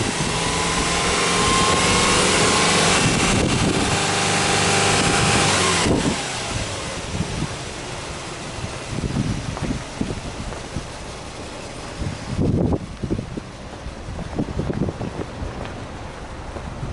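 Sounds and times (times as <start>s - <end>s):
car engine revving: 0.0s - 16.9s.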